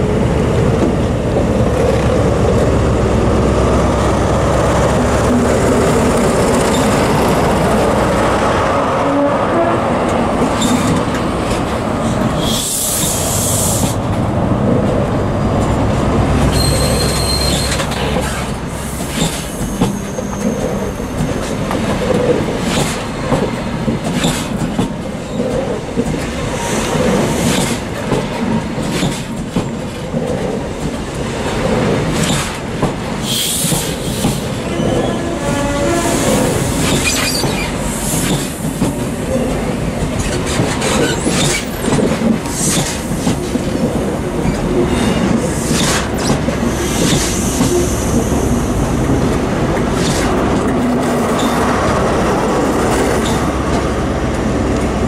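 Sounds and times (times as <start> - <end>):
train wheels clickety-clack: 0.0 - 8.8, 10.0 - 55.0
diesel train engine drone: 0.0 - 55.0
high wheel squeal: 16.5 - 21.4.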